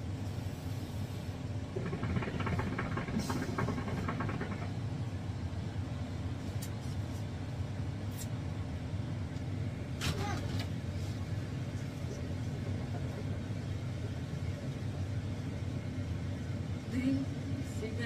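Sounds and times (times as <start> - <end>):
vehicle interior rumble: 1.5 - 5.5
faint rattling: 1.7 - 5.2.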